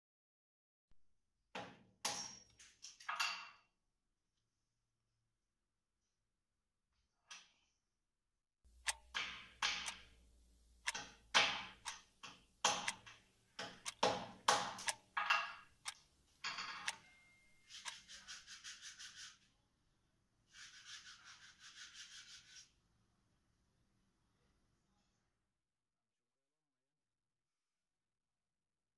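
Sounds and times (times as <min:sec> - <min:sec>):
fast rhythmic scraping: 0:17.6 - 0:19.5, 0:20.5 - 0:22.7.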